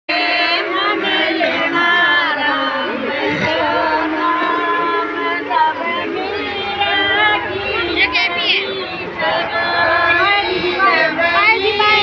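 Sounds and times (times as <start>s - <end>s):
crowd chatter: 0.1s - 12.0s
women singing together: 0.1s - 12.0s.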